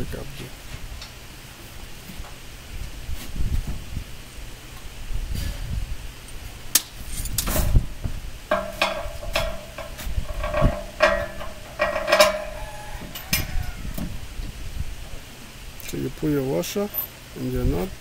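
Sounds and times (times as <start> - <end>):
metal clinks and taps: 8.5 - 13.5
struck steel ringing: 8.5 - 13.9.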